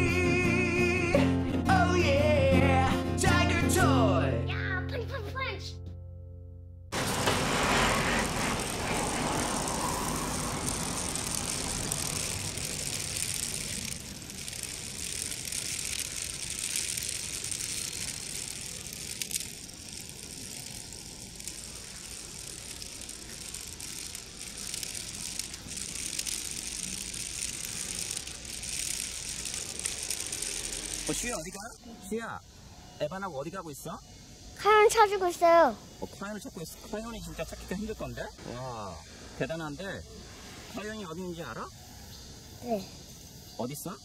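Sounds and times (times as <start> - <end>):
outdoor hiss: 6.9 - 44.0
toy car wheels rattling on stone: 7.0 - 31.8.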